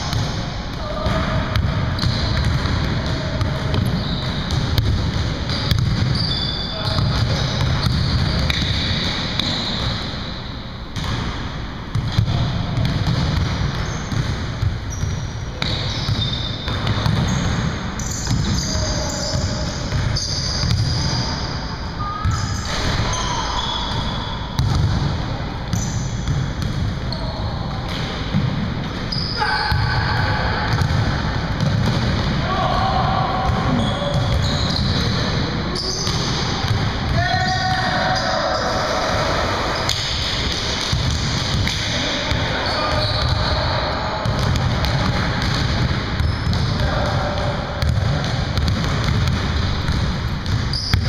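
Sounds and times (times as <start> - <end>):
voices calling out: 42.0 - 44.4
basketball bouncing on wooden floor: 44.2 - 46.9, 47.8 - 51.0.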